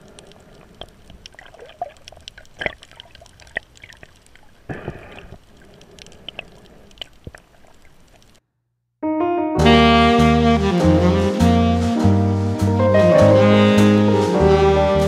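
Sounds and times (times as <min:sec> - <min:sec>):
underwater clicks and crackles: 0:00.0 - 0:08.4
saxophone jazz tune: 0:09.0 - 0:15.0.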